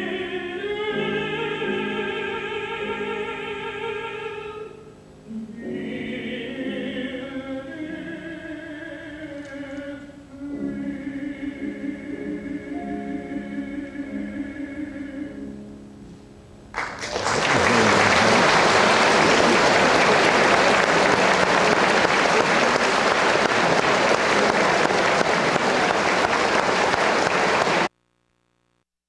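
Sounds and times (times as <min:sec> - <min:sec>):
voice and piano song: 0:00.0 - 0:27.9
audience applause: 0:16.8 - 0:27.9.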